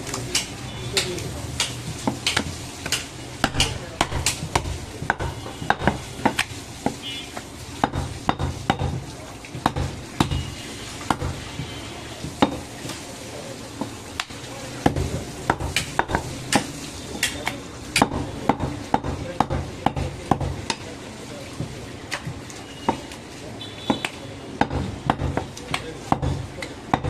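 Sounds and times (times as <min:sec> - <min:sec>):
knife chopping on wooden block: 0:01.6 - 0:07.0, 0:07.8 - 0:09.0, 0:09.6 - 0:10.5, 0:11.1 - 0:13.0, 0:14.8 - 0:20.8, 0:23.9 - 0:27.0.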